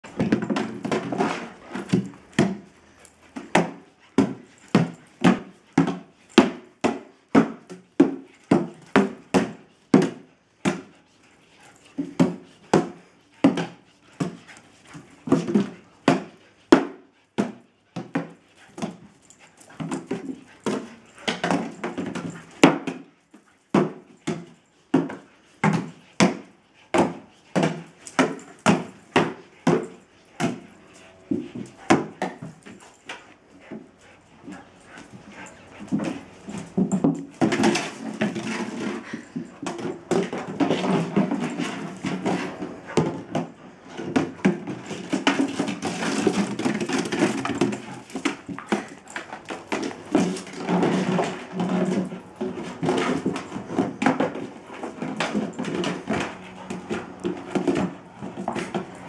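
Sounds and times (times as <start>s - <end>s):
plastic jug clattering on tiles: 36.8s - 58.9s.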